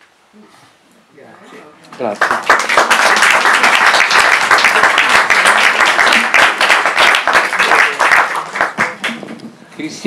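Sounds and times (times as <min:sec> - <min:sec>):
audience applauding: 0:02.0 - 0:09.3.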